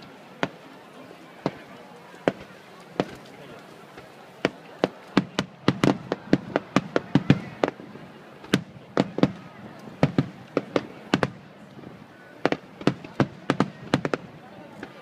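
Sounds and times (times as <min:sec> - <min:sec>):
fireworks bangs: 0:00.4 - 0:00.6, 0:01.4 - 0:15.0.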